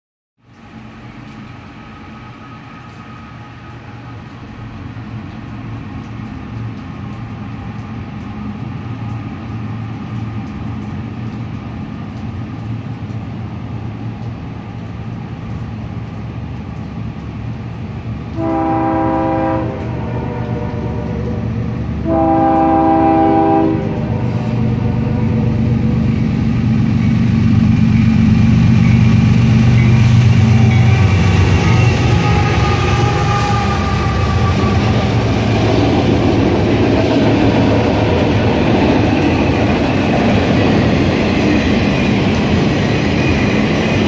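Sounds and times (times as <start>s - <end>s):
freight train rumble: 0.4s - 44.0s
locomotive air horn blast: 18.4s - 25.6s, 30.8s - 35.3s.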